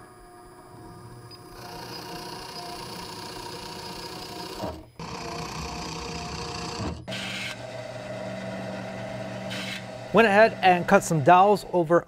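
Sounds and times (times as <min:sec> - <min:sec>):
drill press motor whirring: 0:00.0 - 0:11.3.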